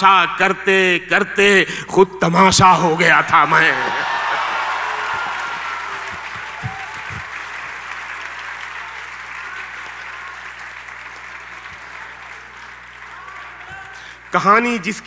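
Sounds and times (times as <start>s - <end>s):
audience applauding: 3.3s - 14.8s.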